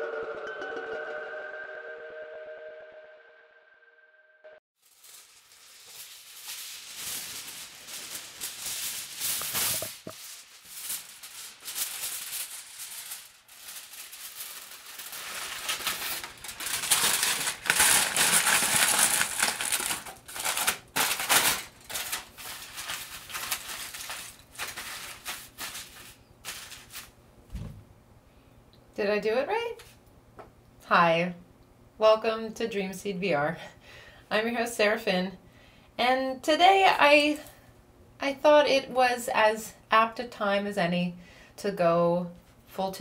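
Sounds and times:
aluminium foil crinkling: 4.8 - 27.2.

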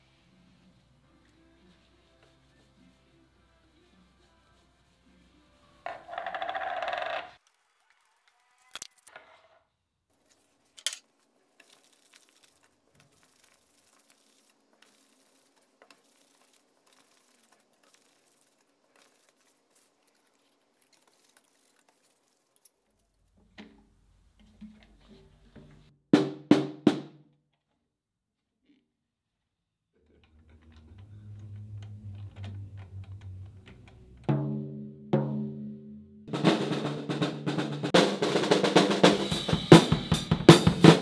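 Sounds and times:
sanding block rubbing wood: 1.4 - 6.4, 12.5 - 22.5.

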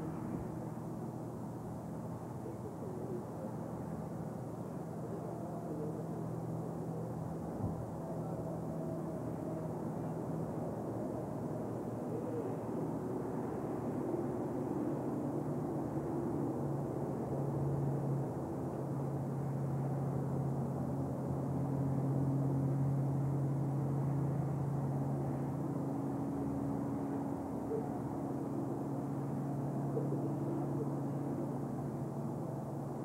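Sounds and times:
low steady hum: 0.0 - 33.0.

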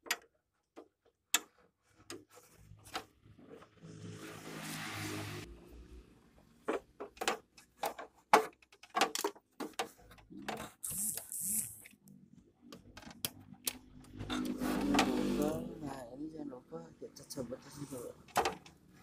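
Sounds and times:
plastic and metal parts clicking: 6.7 - 12.0.

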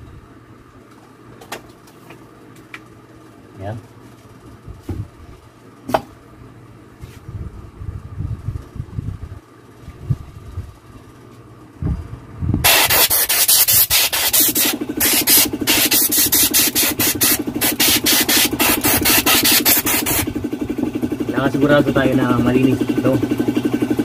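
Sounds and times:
air compressor pulsing hum: 0.0 - 24.0
compressed air hissing from spray gun: 12.6 - 20.3.

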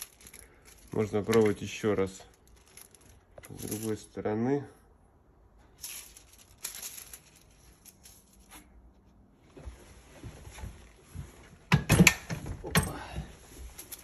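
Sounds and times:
foil rustling and crinkling: 0.0 - 4.0, 5.8 - 8.7.

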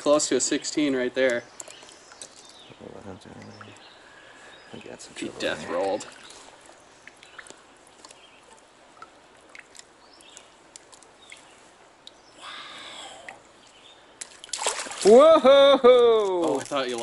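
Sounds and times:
breathy rush of noise: 12.3 - 13.5.

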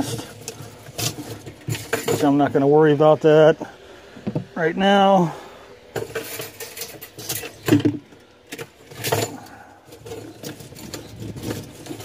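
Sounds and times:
metal clinks and rattles: 0.0 - 2.5, 5.9 - 12.0.

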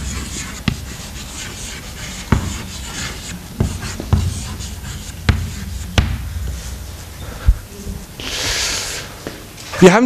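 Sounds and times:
chalk tapping on board: 0.0 - 6.3
chalk scratching on blackboard: 0.0 - 6.8.

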